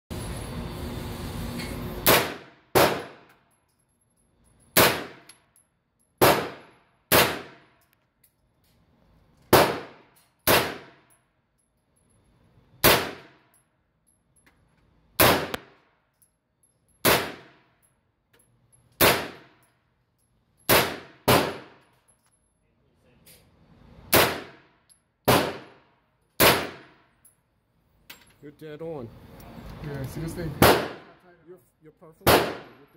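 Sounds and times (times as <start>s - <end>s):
pistol shots with ringing echo: 2.0s - 3.3s, 4.8s - 5.3s, 6.2s - 7.7s, 9.5s - 11.0s, 12.8s - 13.4s, 15.2s - 15.7s, 17.0s - 17.6s, 19.0s - 19.5s, 20.7s - 21.8s, 24.1s - 24.6s, 25.2s - 25.8s, 26.4s - 27.0s, 30.6s - 31.2s, 32.2s - 32.9s.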